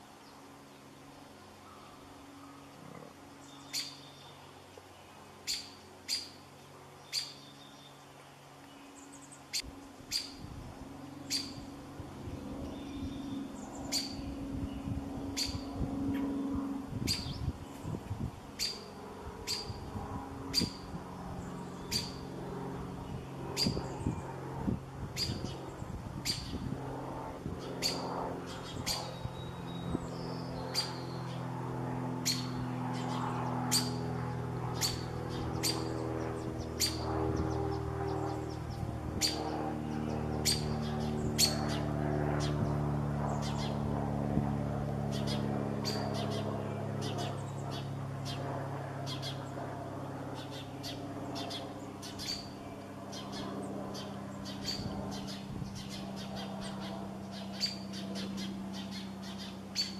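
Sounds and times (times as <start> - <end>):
small bird chip calls: 3.4 - 6.4, 7.0 - 10.4, 11.2 - 11.7, 12.6 - 15.7, 17.1 - 18.0, 18.6 - 19.8, 20.5 - 22.2, 25.2 - 26.6, 27.8 - 31.4, 32.2 - 34.0, 34.7 - 42.7, 45.1 - 48.4, 49.1 - 49.5, 50.4 - 59.9.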